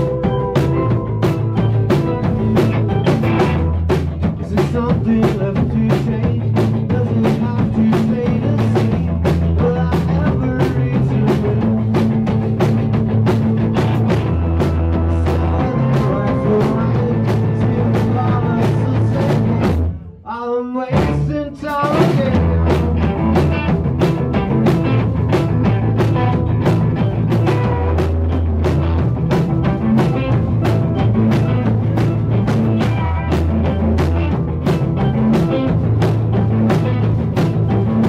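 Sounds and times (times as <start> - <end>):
wavering melodic line: 0.0 - 3.9
rock band playing live: 0.0 - 38.0.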